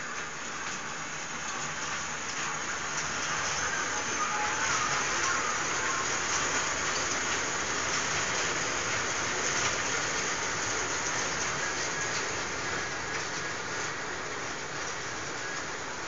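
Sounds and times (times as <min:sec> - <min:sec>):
train wheels rattling on rails: 0:00.0 - 0:16.0.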